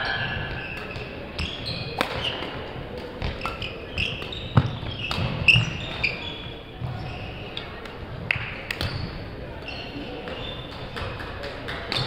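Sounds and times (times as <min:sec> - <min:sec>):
shoe soles squeaking on floor: 0:00.1 - 0:02.5, 0:03.2 - 0:07.8, 0:08.8 - 0:11.2
racket hitting shuttlecock: 0:00.6 - 0:06.2.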